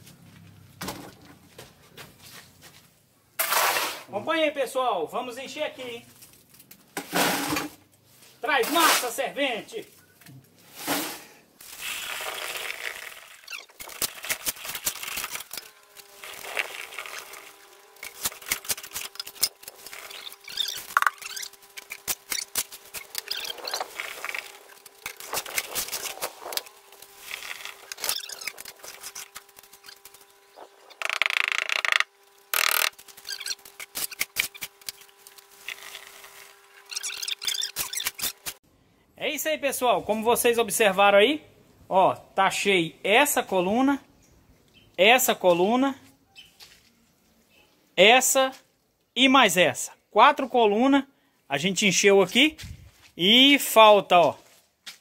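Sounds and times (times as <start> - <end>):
tools scraping wet concrete: 3.4 - 4.1, 8.6 - 9.3, 10.7 - 38.6.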